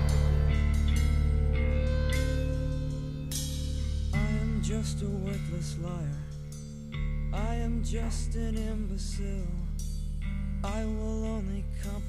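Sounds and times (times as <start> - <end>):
song with guitar: 0.0 - 12.0.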